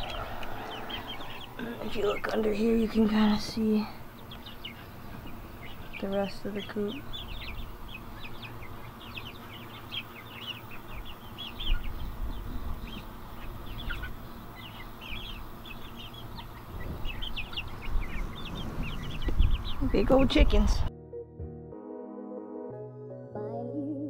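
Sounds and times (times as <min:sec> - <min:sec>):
chickens chirping: 0:00.0 - 0:20.9
low rumble on microphone: 0:10.6 - 0:20.9.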